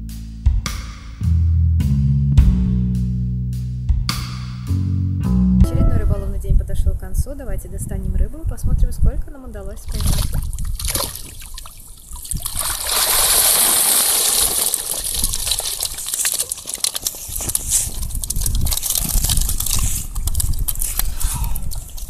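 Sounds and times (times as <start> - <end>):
water dripping and pattering: 9.7 - 22.0
water gushing from net: 9.9 - 20.9.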